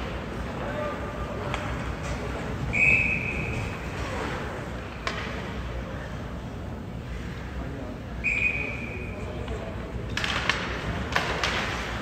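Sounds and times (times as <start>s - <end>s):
arena background noise: 0.0s - 12.0s
referee's whistle blast: 2.7s - 3.6s, 8.2s - 9.0s.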